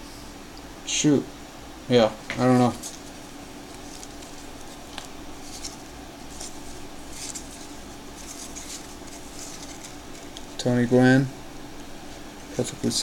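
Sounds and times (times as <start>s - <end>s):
steady low hum: 0.0s - 13.0s
cards sliding and rubbing: 2.4s - 10.6s.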